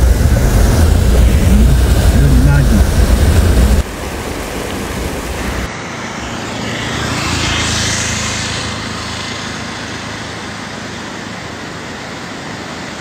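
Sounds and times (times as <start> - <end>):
floodwater rushing: 0.0 - 13.0
vehicle passing by: 4.9 - 13.0.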